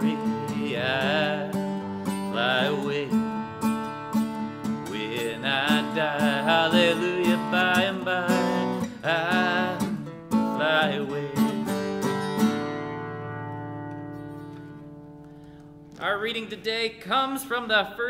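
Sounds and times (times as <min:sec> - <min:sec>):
man singing: 0:00.0 - 0:03.9, 0:04.6 - 0:12.2, 0:16.0 - 0:18.0
acoustic guitar strumming: 0:00.0 - 0:17.6.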